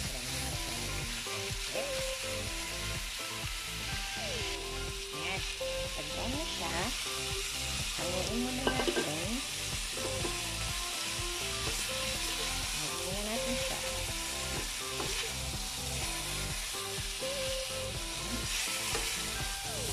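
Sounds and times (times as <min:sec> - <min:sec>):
chicken sizzling in oil: 0:00.0 - 0:19.9.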